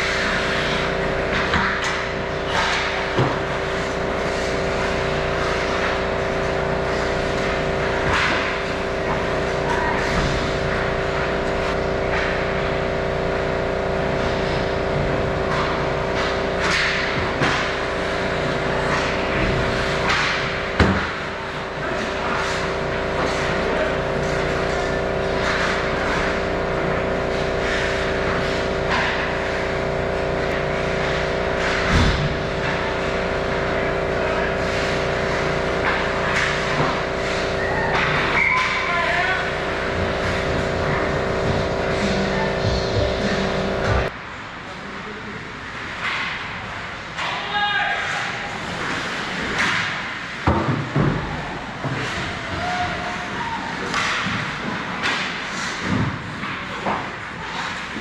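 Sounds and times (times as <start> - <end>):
steady mechanical hum: 0.0 - 58.0
hockey sticks clacking: 7.3 - 8.8, 15.5 - 23.8, 24.5 - 26.4, 27.6 - 29.7, 45.9 - 58.0
skates scraping ice: 48.0 - 50.8, 51.8 - 58.0.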